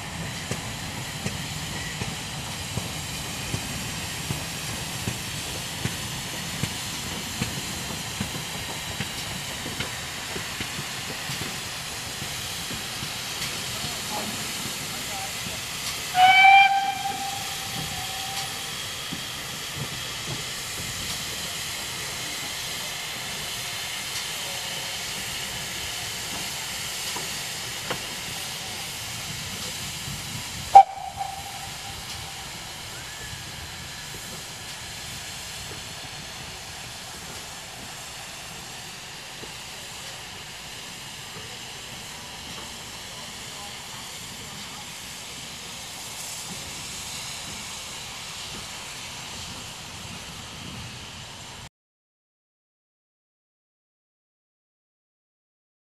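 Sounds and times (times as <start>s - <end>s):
steam hissing: 0.0s - 51.7s
steam locomotive whistle: 16.0s - 18.8s, 30.7s - 33.4s.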